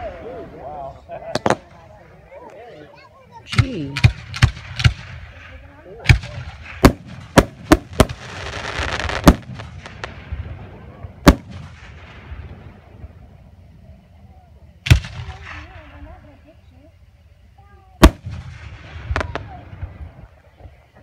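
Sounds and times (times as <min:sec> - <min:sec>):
firework shells booming: 0:01.2 - 0:02.0, 0:03.5 - 0:13.2, 0:14.8 - 0:16.2, 0:18.0 - 0:20.8
firework hiss: 0:03.5 - 0:13.7, 0:14.8 - 0:21.0.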